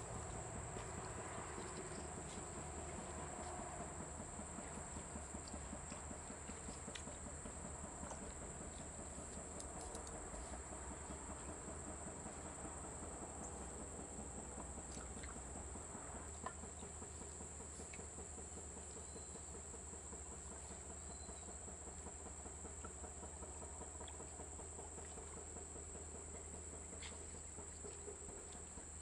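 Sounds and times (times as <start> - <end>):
soft low rumble: 0.0 - 19.3
insects droning: 0.0 - 29.0
faint clicks: 9.2 - 10.2.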